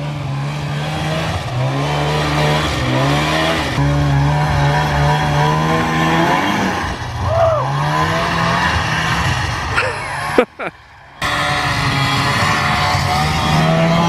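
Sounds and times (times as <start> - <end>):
snowmobile engine revving: 0.0 - 14.0.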